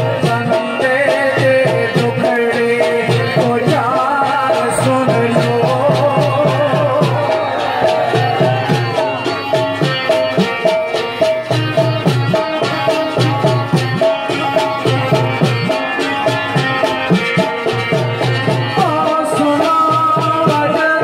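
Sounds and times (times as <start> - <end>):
hand drum beat: 0.0 - 21.0
harmonium: 0.0 - 21.0
keyed banjo melody: 0.0 - 21.0.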